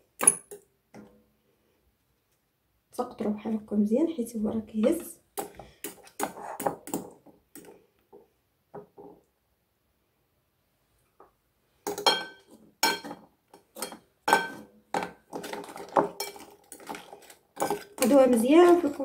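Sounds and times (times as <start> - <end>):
cutlery clinking against glass bowl: 11.9 - 19.0.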